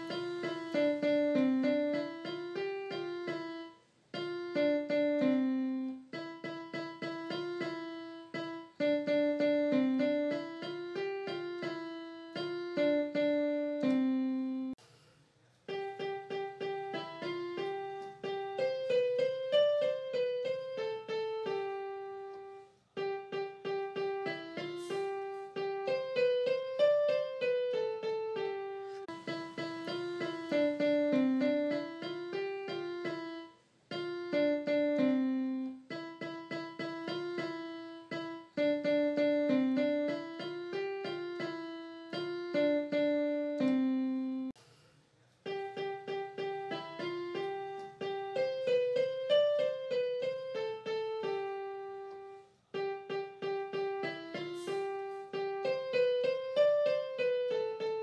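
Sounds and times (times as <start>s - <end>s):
piano melody: 0.0s - 14.8s, 15.7s - 44.6s, 45.4s - 58.0s.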